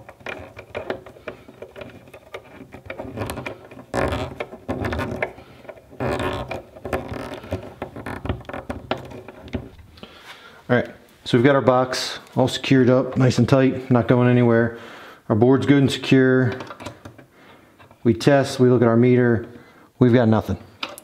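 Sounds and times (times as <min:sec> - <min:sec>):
screwdriver metal clicks and scraping: 0:00.0 - 0:09.6.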